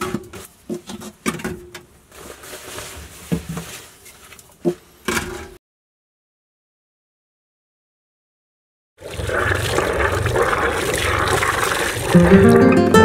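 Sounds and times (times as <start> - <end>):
soft rustling: 2.1 - 4.6.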